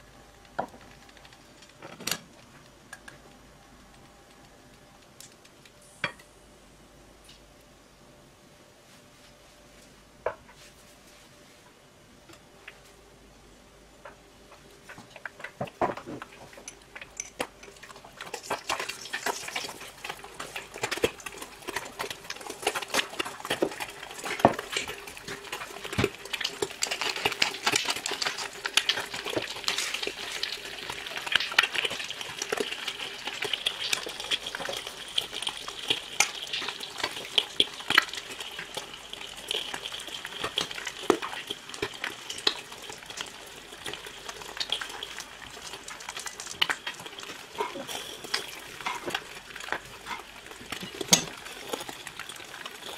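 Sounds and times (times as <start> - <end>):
oil crackling and popping: 0.0 - 5.8, 14.1 - 52.9
eggs sizzling in hot oil: 14.5 - 52.9.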